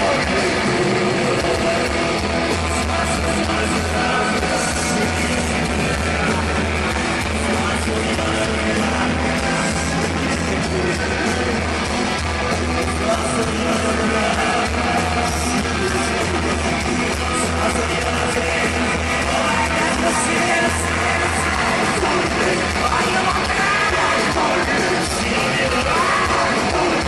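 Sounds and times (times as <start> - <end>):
bass guitar: 0.0 - 27.0
distorted electric guitars: 0.0 - 27.0
drums: 0.0 - 27.0.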